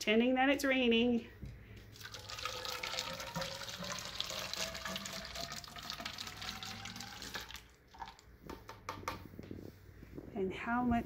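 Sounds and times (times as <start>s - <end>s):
water pouring through funnel: 1.9s - 8.3s.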